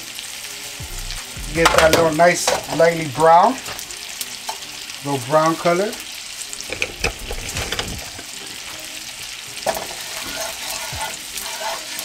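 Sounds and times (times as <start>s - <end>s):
garlic sizzling in oil: 0.0s - 12.0s
wooden spoon knocking on pan: 1.5s - 2.6s.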